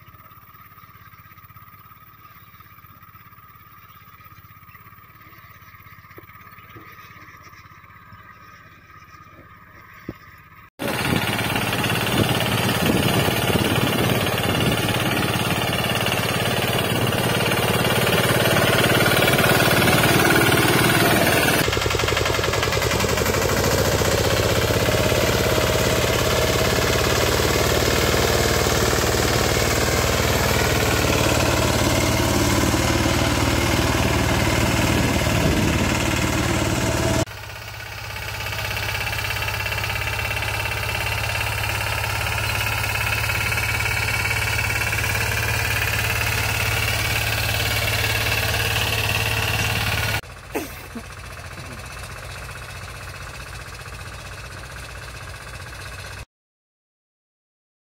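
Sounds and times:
mini tractor engine running: 0:00.0 - 0:08.4, 0:10.4 - 0:56.3
tractor working a plough: 0:09.0 - 0:56.2.

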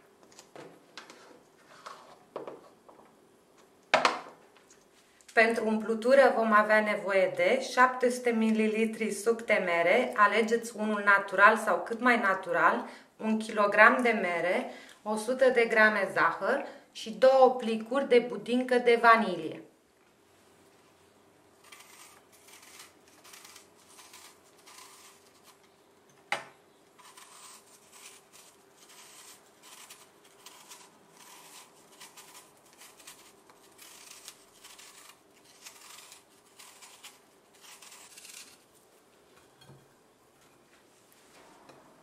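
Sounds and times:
knife paring apple skin: 0:21.6 - 0:25.8, 0:26.9 - 0:39.9.

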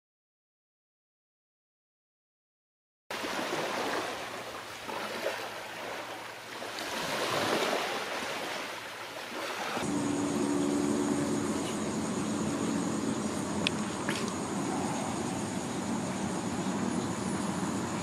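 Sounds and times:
small waves washing onto sand: 0:03.1 - 0:10.0
low steady hum: 0:08.2 - 0:18.0.

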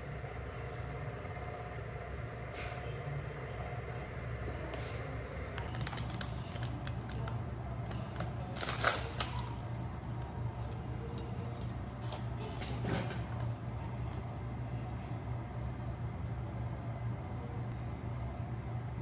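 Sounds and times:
steady low hum: 0:00.0 - 0:19.0
plastic packaging crackling: 0:05.6 - 0:10.8.

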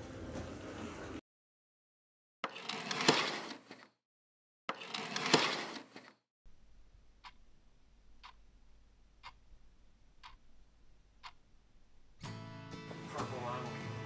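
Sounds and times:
curtains swishing along rail: 0:04.8 - 0:06.1
low steady hum: 0:06.5 - 0:12.2
clock ticking: 0:07.2 - 0:07.6, 0:08.2 - 0:08.5, 0:09.1 - 0:11.6.

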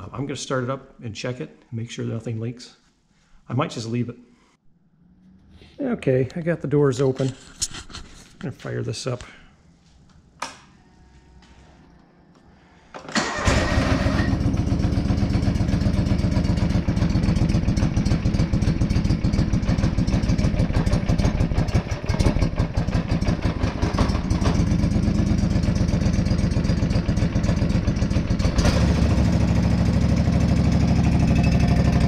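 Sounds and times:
tractor engine running: 0:13.1 - 0:32.0.

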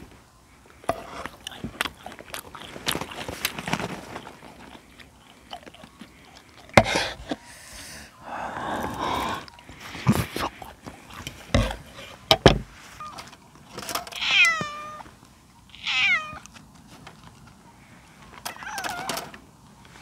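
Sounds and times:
cat meowing: 0:14.2 - 0:15.1, 0:15.7 - 0:16.4, 0:18.5 - 0:19.3.

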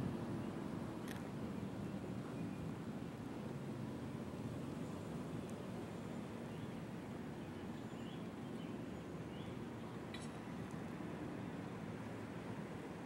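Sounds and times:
faint bird chirps: 0:07.4 - 0:10.4.

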